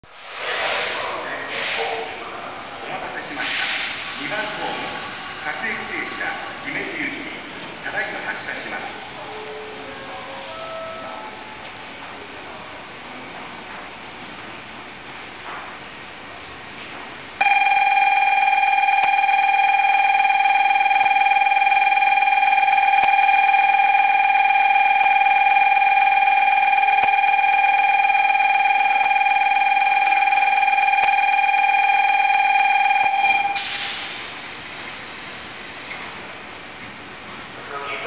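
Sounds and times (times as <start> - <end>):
station departure bell ringing: 9.2 - 12.0, 17.4 - 34.0.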